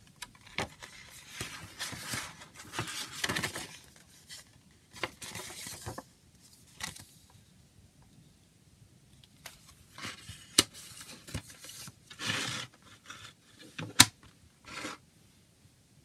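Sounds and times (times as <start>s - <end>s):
paper booklet rustling: 0.2s - 7.2s, 9.4s - 13.6s.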